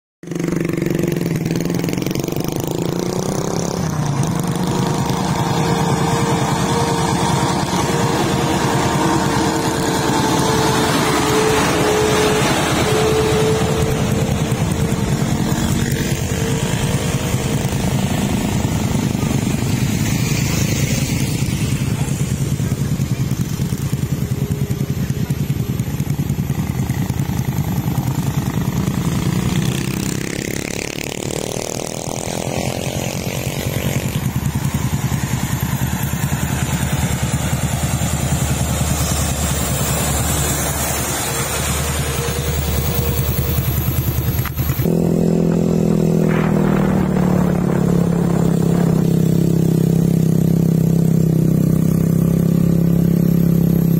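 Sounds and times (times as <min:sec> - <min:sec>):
motorcycles passing: 0:00.2 - 0:53.9
truck engine: 0:00.2 - 0:53.9.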